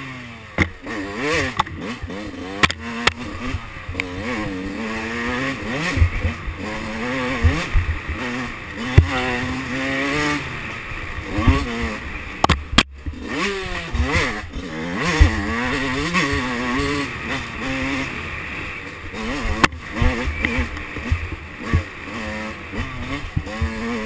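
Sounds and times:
motorcycle engine revving: 0.0 - 24.0
bike knocking on bumps: 8.8 - 9.3.

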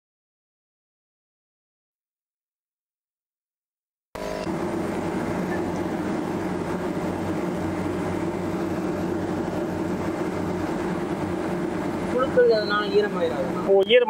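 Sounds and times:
rushing air: 4.2 - 13.8
fan motor hum: 4.2 - 14.0.

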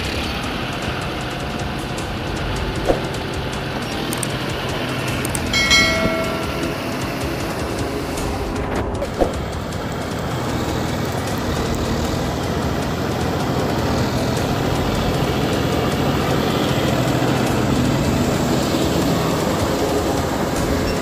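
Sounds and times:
tractor diesel engine running: 0.0 - 21.0
tiller churning mud: 6.6 - 21.0.

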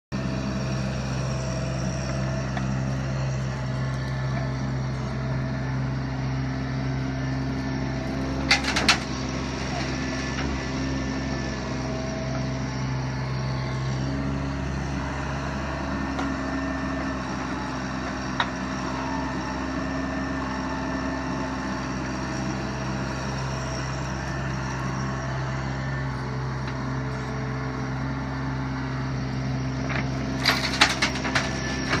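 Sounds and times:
excavator diesel engine running: 0.2 - 32.0
soil and stones rattling into trailer: 30.4 - 32.0.

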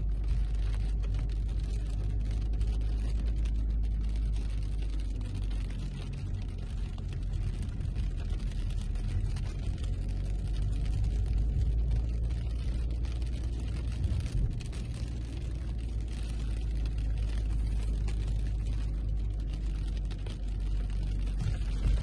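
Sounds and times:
raindrops spattering: 0.0 - 22.0.

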